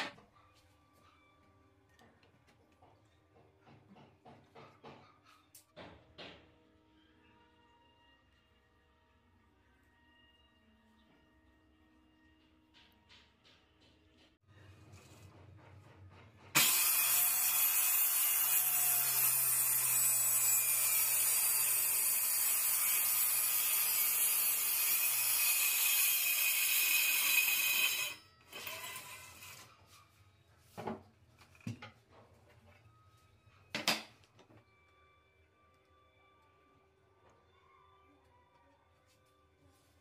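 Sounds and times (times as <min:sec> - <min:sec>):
circular saw cutting plywood: 0:16.5 - 0:29.8.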